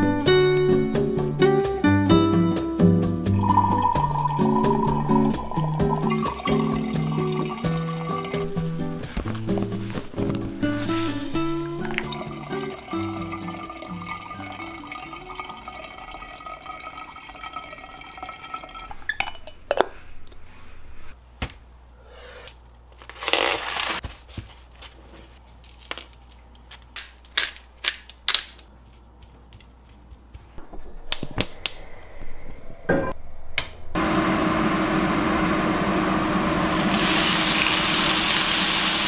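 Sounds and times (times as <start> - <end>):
packaging crinkling: 23.0 - 28.7.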